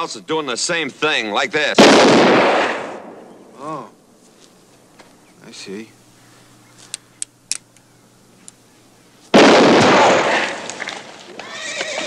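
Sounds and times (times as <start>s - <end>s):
sharp clicks: 6.9s - 8.6s
handgun shot: 9.4s - 10.8s.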